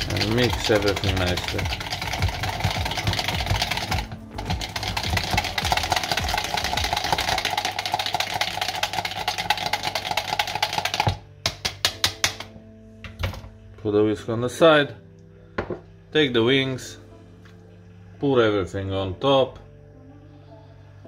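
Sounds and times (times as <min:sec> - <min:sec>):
metal whisk clattering in plastic jug: 0:00.0 - 0:11.2.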